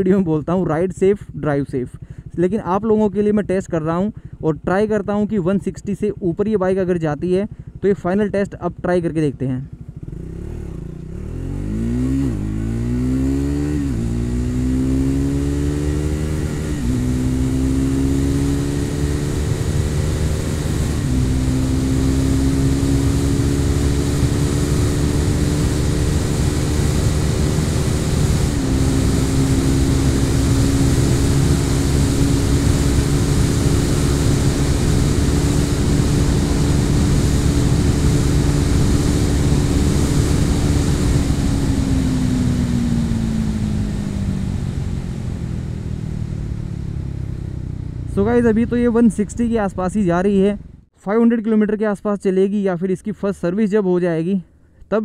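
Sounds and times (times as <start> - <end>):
motorcycle engine accelerating: 9.7 - 50.9
wind rushing over microphone: 11.5 - 50.7.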